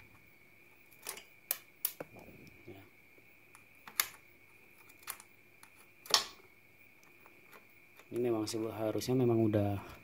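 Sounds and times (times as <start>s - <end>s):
faint high whine: 0.0s - 10.0s.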